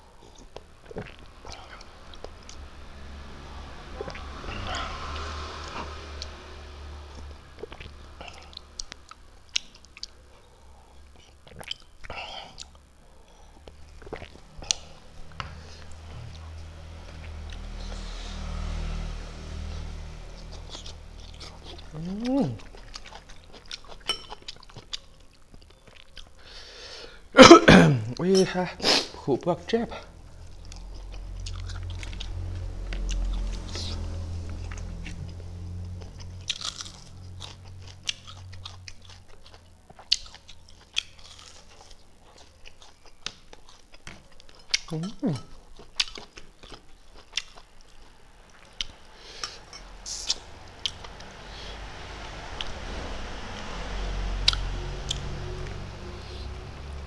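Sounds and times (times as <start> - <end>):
low steady hum: 0.0 - 57.0
wet chewing mouth sounds: 13.6 - 15.0
crispy chicken crunching: 34.8 - 45.1.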